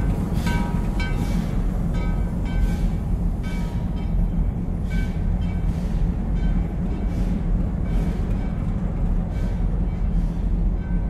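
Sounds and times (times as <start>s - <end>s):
freight cars rumbling on rails: 0.0s - 11.0s.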